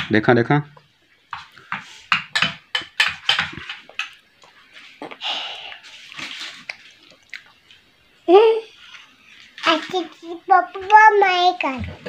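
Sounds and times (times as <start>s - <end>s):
sharp clicks and smacks: 1.3s - 4.6s.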